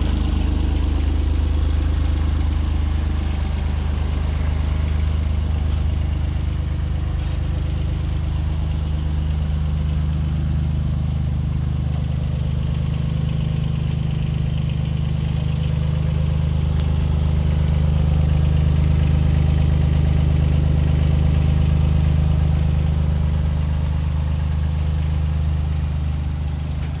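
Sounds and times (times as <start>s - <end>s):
diesel engine idling: 0.0s - 27.0s.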